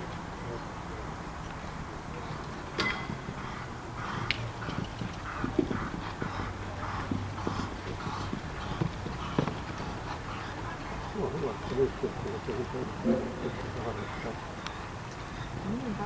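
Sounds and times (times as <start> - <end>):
sharp knocks: 2.8 - 3.5
horse hoofbeats on sand: 2.8 - 10.6.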